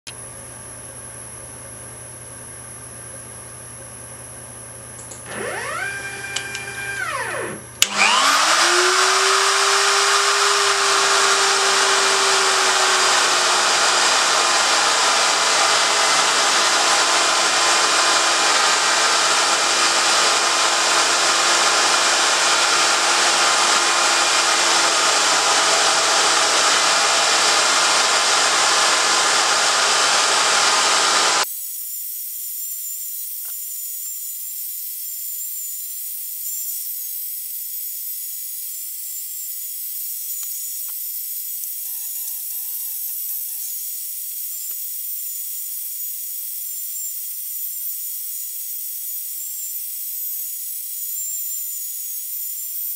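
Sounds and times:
electric router running: 5.0s - 31.5s
machine motors whining: 5.2s - 31.4s.

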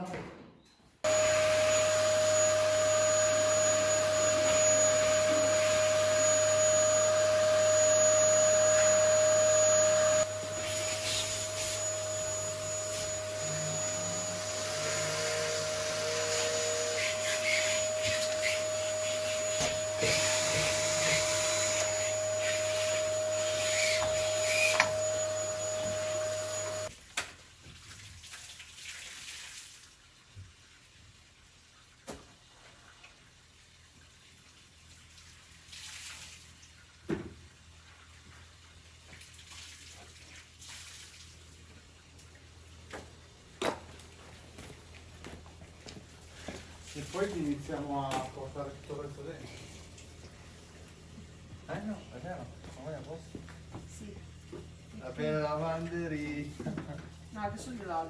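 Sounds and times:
vacuum cleaner running: 1.1s - 26.9s, 44.6s - 52.0s.

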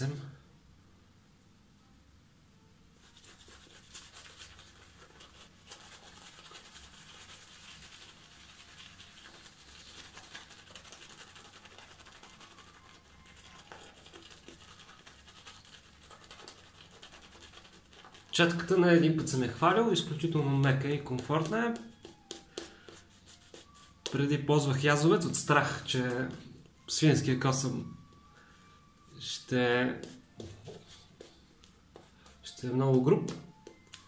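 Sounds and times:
shaving brush scrubbing lather: 3.1s - 18.7s.

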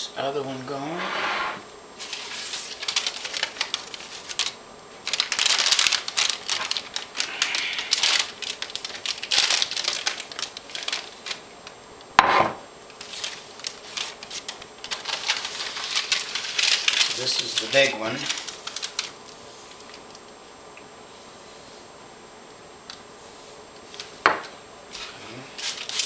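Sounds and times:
plastic bag and cloth rustling: 2.0s - 11.5s, 13.0s - 20.2s, 24.9s - 26.0s
bowl knocking on tiled counter: 12.2s - 12.6s.

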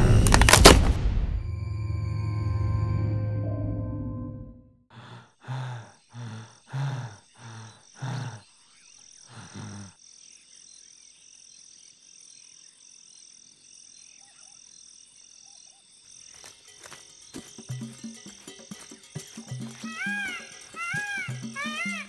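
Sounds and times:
insects chirping: 4.9s - 22.0s
cartoon peacock sobbing: 5.0s - 8.4s, 9.3s - 9.9s, 19.8s - 22.0s.

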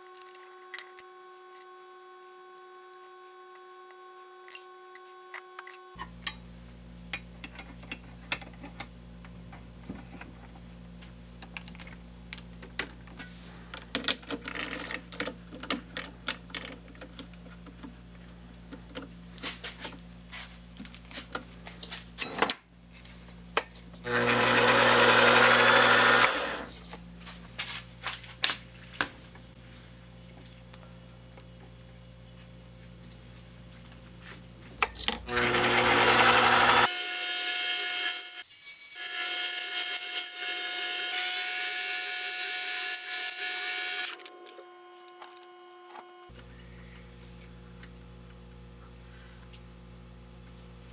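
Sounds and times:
end mill cutting brass: 24.1s - 26.7s, 35.3s - 44.2s
lathe motor running: 24.1s - 26.7s, 35.3s - 36.9s.

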